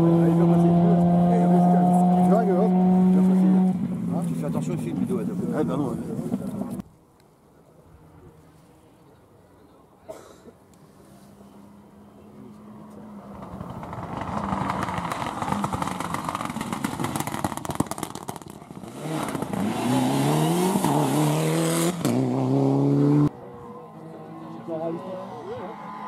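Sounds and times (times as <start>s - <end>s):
rally car engine accelerating past: 0.0s - 3.8s, 12.6s - 26.0s
engine crackles and pops: 12.4s - 19.7s.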